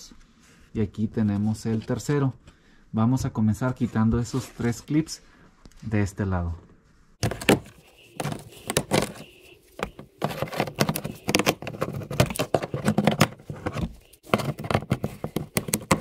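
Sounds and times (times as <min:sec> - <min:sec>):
plastic clips clicking and scraping: 0:07.2 - 0:09.2, 0:09.8 - 0:16.0.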